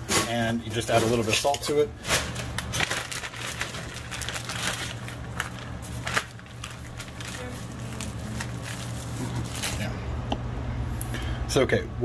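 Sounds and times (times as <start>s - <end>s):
steady low hum: 0.0s - 12.0s
plastic bag crinkling: 0.7s - 9.9s.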